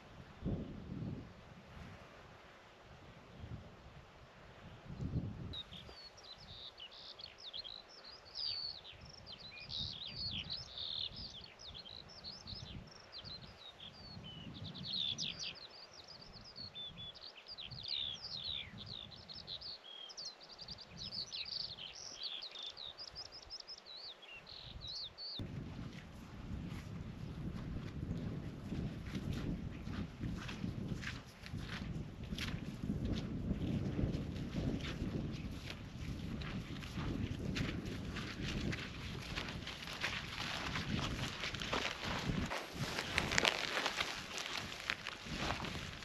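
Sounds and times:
wind buffeting microphone: 0.0 - 7.1, 8.4 - 19.8, 24.5 - 46.0
songbird chirps and trills: 5.5 - 25.4.

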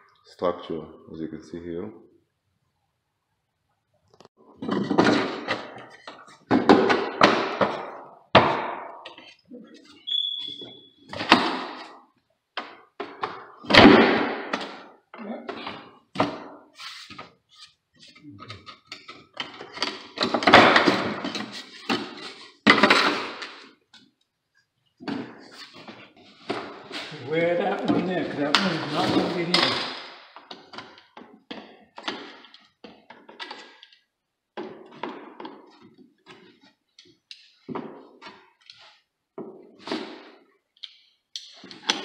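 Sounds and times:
brief high squeak: 9.9 - 11.0.

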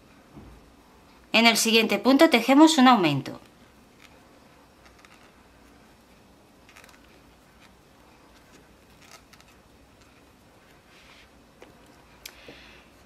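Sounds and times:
crochet hook pulling yarn: 4.8 - 5.4, 6.7 - 10.8.

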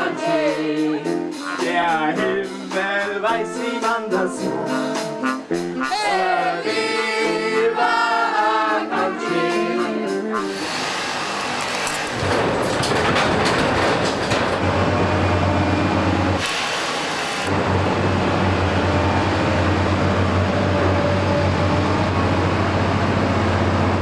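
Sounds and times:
hissing sound: 10.4 - 11.6
harsh metal-working noise: 10.5 - 20.9
diesel machinery engine drone: 10.5 - 24.0.

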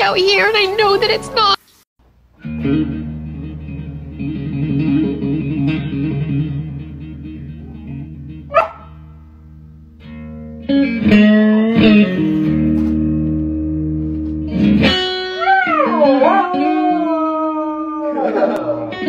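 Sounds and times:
blues electric guitar licks: 2.4 - 19.0
dog howling: 7.5 - 8.9, 15.2 - 19.0.

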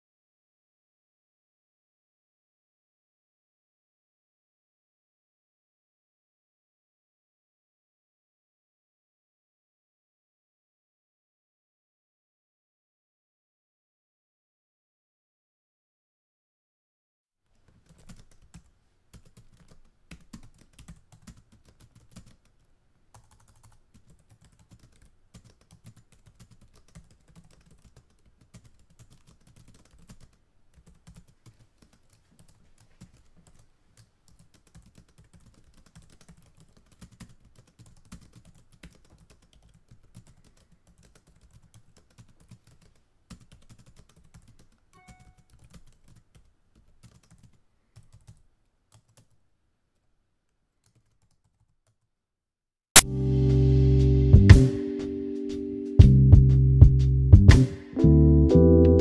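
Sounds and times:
keyboard typing: 17.6 - 49.4, 50.8 - 52.0
brief faint tone: 45.0 - 45.5.

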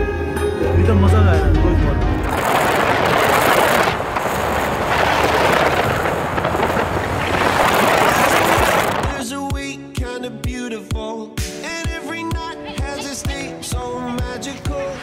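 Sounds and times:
wind buffeting microphone: 2.2 - 9.2.

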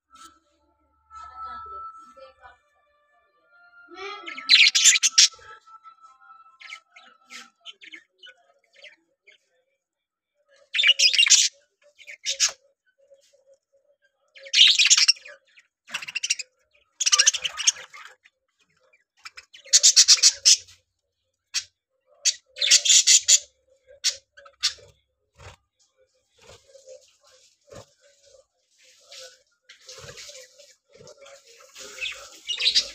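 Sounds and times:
budgerigars chattering and squawking: 4.3 - 5.4, 10.7 - 12.6, 14.4 - 18.2, 19.0 - 20.8, 21.5 - 25.0, 28.9 - 32.9.

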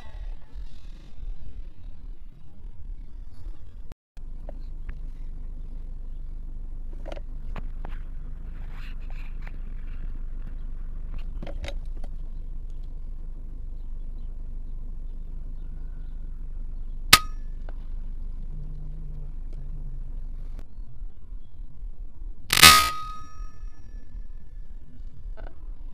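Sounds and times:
low steady rumble: 0.0 - 25.9
rifle shot with metallic ring: 17.2 - 17.5, 22.5 - 24.0.

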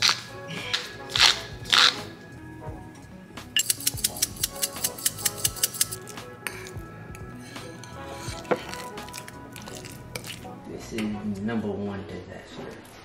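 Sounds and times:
background music: 0.0 - 13.0
fork clinking against ceramic bowl: 3.6 - 10.4.

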